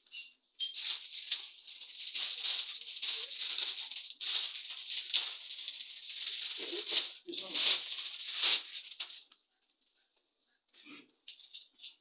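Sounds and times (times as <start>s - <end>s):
plastic bag crinkling: 0.8s - 9.2s.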